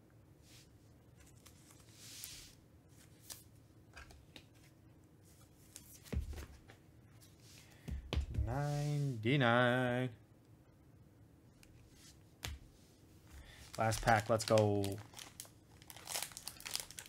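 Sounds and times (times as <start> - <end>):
dull taps: 7.8 - 8.6.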